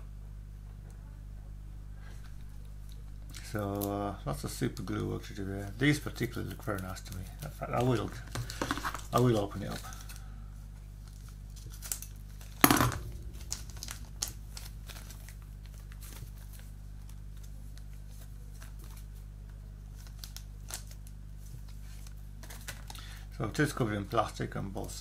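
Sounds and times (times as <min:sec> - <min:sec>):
plastic crinkling: 0:06.2 - 0:10.2, 0:11.0 - 0:19.2, 0:19.8 - 0:23.0
plastic bag crackling: 0:11.0 - 0:19.1.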